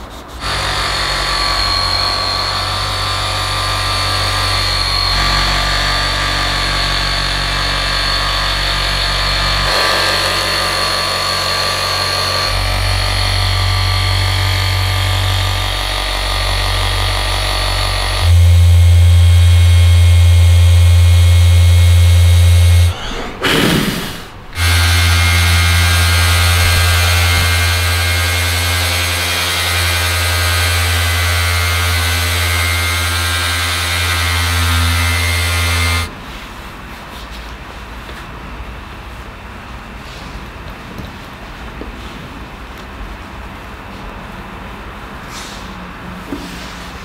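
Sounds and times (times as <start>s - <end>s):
electric machine humming: 0.4s - 23.1s, 24.2s - 36.1s.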